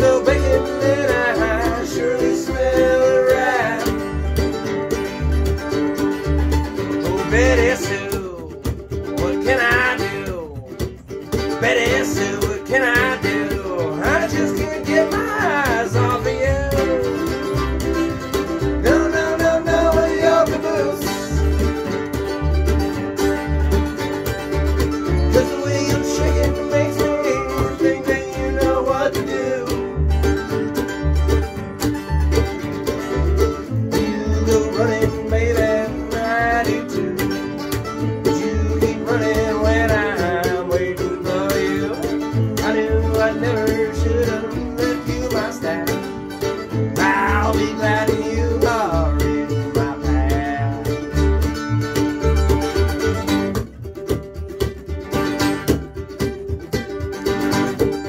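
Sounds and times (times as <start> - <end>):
man singing: 0.0 - 4.3, 6.9 - 17.6, 18.6 - 21.7, 25.0 - 30.2, 33.6 - 51.4
bluegrass band playing: 0.0 - 58.0
upright bass thumping: 0.0 - 58.0.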